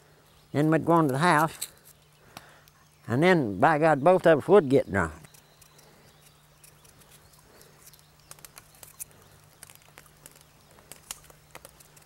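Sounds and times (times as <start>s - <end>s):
low steady hum: 0.0s - 12.0s
wood fire crackling: 5.0s - 12.0s.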